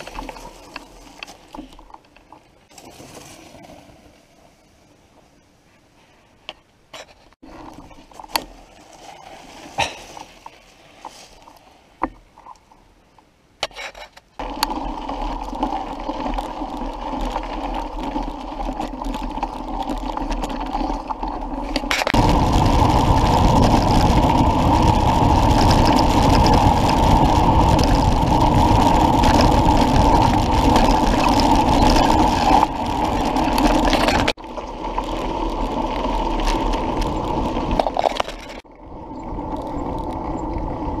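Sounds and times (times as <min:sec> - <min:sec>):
bike clicks and rattles: 0:00.0 - 0:03.4, 0:13.6 - 0:41.0
tyres rolling: 0:13.9 - 0:38.6
wind on microphone: 0:19.8 - 0:34.4.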